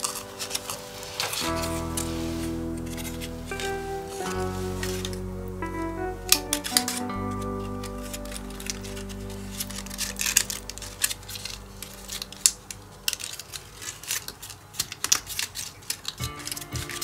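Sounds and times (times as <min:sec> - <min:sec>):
cardstock crinkling and clicking: 0:00.0 - 0:02.1, 0:06.2 - 0:17.0.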